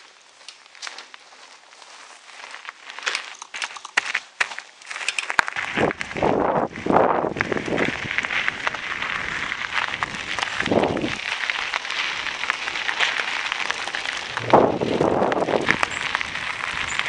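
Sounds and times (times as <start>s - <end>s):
bike tyres crunching on gravel: 0.0s - 17.0s
bike rattling and clicking: 2.9s - 17.0s.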